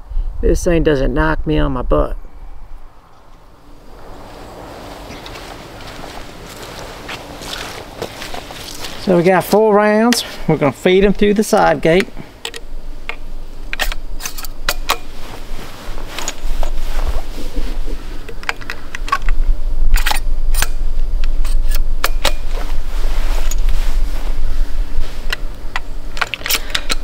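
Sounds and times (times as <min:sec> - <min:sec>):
low rumble: 0:02.1 - 0:09.1
metallic clicks of cartridges loading: 0:12.4 - 0:15.0, 0:18.3 - 0:20.7, 0:25.3 - 0:27.0.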